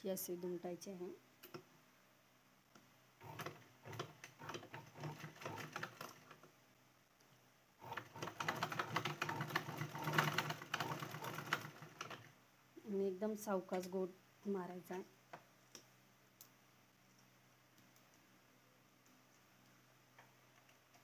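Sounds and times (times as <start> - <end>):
sewing machine stitching: 3.2 - 6.5, 7.8 - 12.3.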